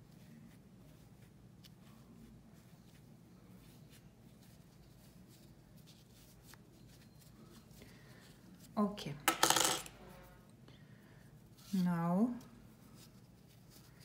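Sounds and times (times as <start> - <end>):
fingers rustling stuffing: 0.0 - 8.8.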